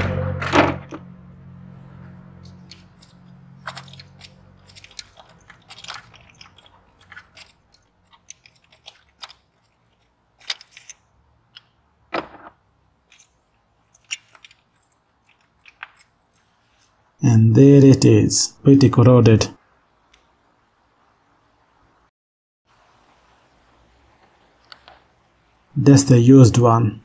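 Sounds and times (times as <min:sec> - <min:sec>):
socket wrench clicking and scraping: 0:02.4 - 0:11.8, 0:13.1 - 0:16.5.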